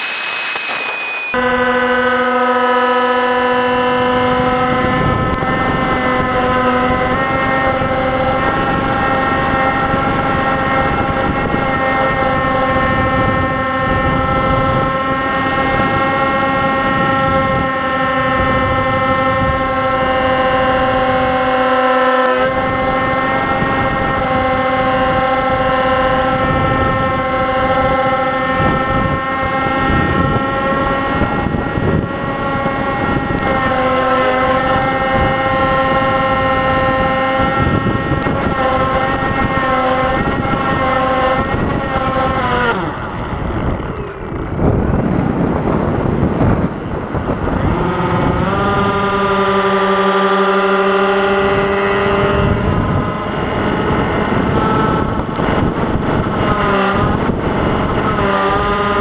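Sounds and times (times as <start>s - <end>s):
model plane motor whine: 0.0s - 1.7s
wind rushing over microphone: 4.0s - 50.3s, 50.9s - 59.0s.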